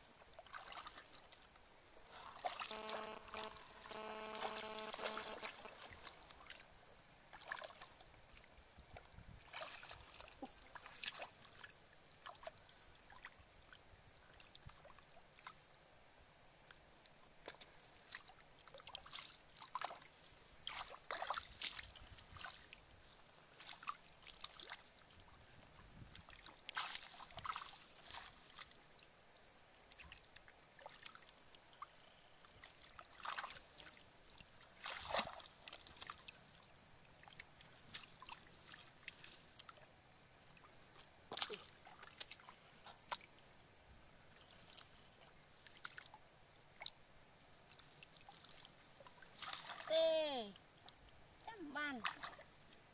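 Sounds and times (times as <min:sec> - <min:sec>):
splashes in muddy water: 0:00.4 - 0:01.4, 0:02.0 - 0:06.7, 0:07.3 - 0:13.4, 0:17.5 - 0:22.9, 0:23.5 - 0:25.2, 0:26.1 - 0:28.8, 0:32.6 - 0:36.6, 0:37.2 - 0:39.9, 0:40.6 - 0:43.4, 0:47.7 - 0:50.5, 0:51.8 - 0:52.6.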